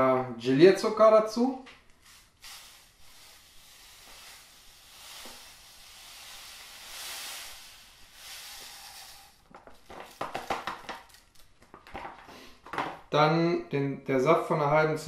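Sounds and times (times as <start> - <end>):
sugar pouring granular hiss: 2.0 - 10.4.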